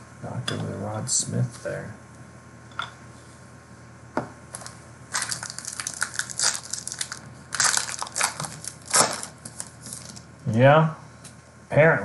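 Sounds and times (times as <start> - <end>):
plastic packaging crinkling: 4.6 - 10.3.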